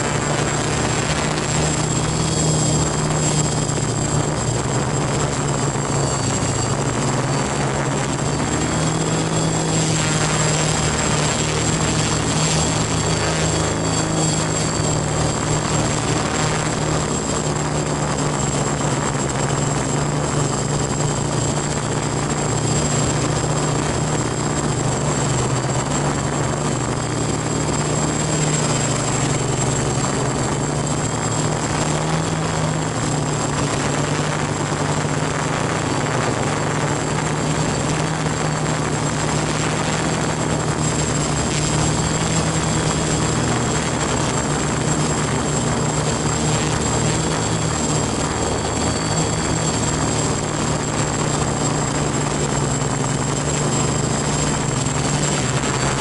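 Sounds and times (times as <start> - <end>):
drone motors buzzing hum: 0.0 - 56.0.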